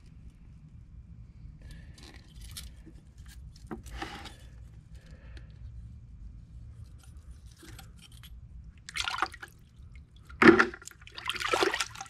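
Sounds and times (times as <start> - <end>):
water splashing in a bucket: 8.9 - 12.0.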